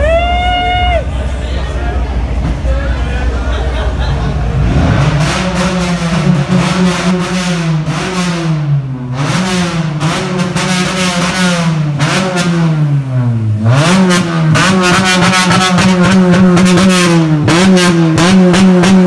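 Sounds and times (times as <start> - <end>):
car engine revving: 3.8 - 19.0.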